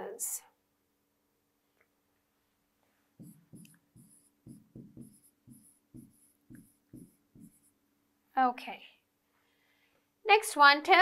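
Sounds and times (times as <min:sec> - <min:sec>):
stylus pen scratching on screen: 0:03.2 - 0:07.7.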